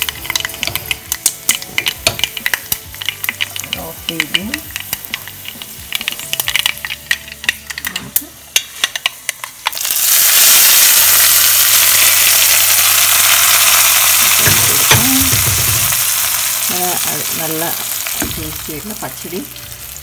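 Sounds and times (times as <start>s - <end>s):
loud sizzle: 0.0s - 20.0s
mustard seeds popping in oil: 0.0s - 20.0s.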